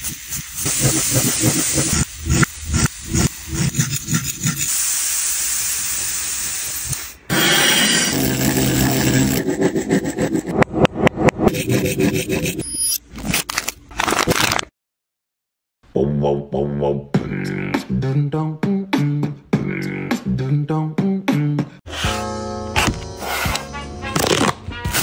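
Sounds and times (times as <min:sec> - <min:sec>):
beatbox-like vocal melody: 0:00.1 - 0:04.8, 0:07.3 - 0:10.6, 0:15.9 - 0:21.8.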